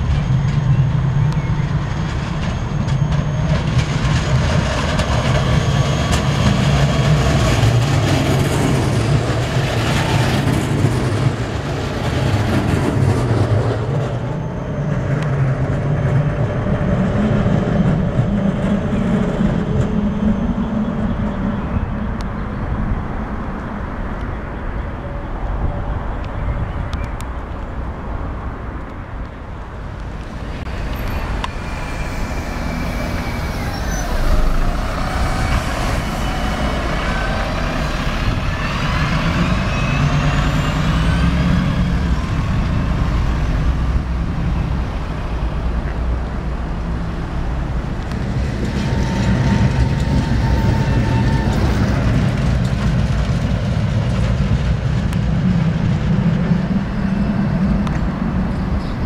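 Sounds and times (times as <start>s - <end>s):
bus engine rumble: 0.0s - 59.0s
cars passing: 27.2s - 59.0s
rising engine whines: 29.7s - 59.0s.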